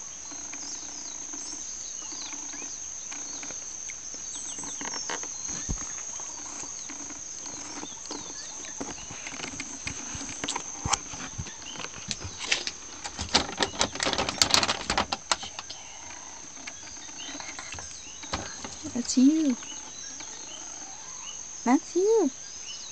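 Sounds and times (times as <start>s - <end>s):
high insect chirring: 0.0s - 22.9s.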